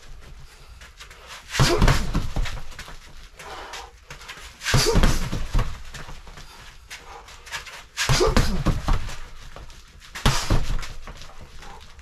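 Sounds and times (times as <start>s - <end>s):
gloves thudding on punching dummy: 1.6s - 3.0s, 4.6s - 6.5s, 8.0s - 11.8s
man breathing heavily and grunting: 3.3s - 5.6s, 6.2s - 9.4s, 11.4s - 12.0s.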